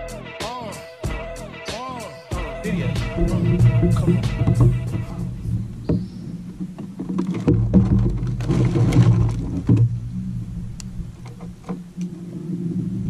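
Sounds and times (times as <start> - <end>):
tackle clicks and knocks: 2.8 - 12.2.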